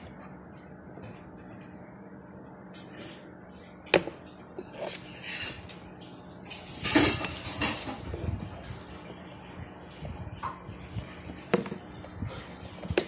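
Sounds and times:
handling knocks and rustles: 10.6 - 13.0.

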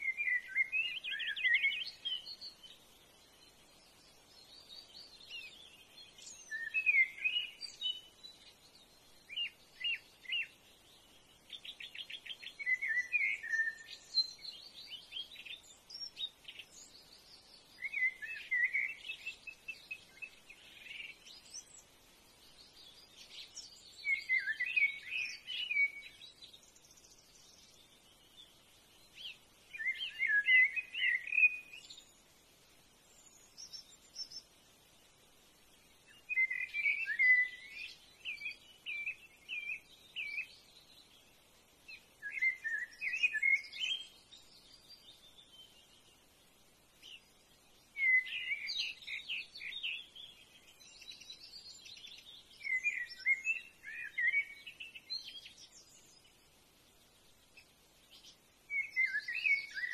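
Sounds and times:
birds chirping: 35.7 - 59.9.

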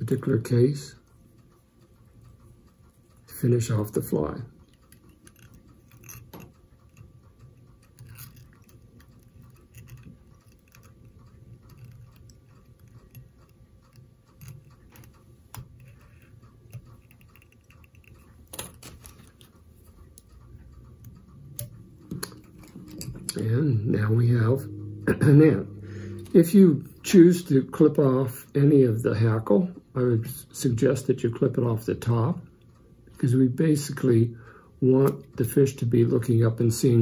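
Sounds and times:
low steady hum: 0.0 - 37.0
tool clicking and scratching: 4.6 - 20.3.

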